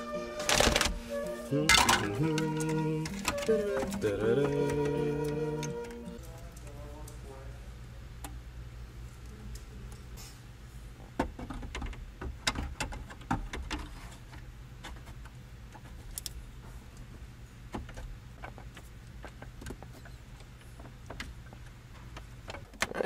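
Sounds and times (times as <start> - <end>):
steady low hum: 0.0 - 12.8.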